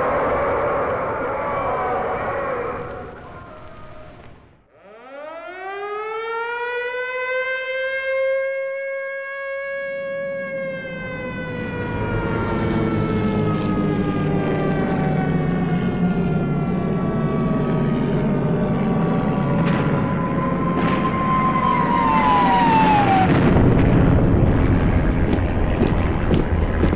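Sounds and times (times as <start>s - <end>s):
air-raid siren winding: 4.7s - 7.4s
low rumbling noise: 11.4s - 26.9s.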